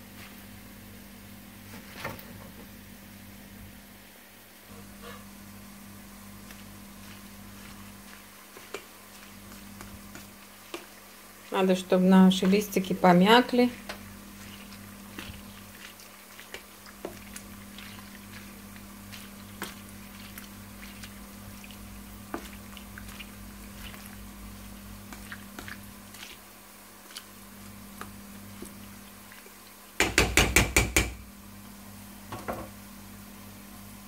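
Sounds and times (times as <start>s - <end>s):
steady low hum: 2.5s - 29.3s
spoon tapping a metal pot: 30.0s - 31.2s.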